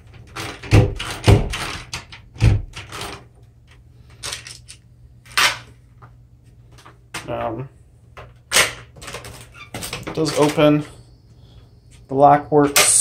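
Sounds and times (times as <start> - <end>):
door lock clunks and knocks: 0.3 - 3.2.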